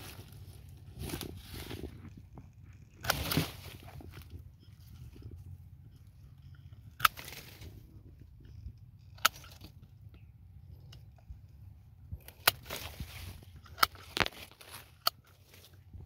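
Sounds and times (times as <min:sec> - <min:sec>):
twigs rustling: 0:00.0 - 0:16.0
pruning shears snipping: 0:03.0 - 0:04.4, 0:06.9 - 0:07.9, 0:09.1 - 0:09.8, 0:12.2 - 0:15.7.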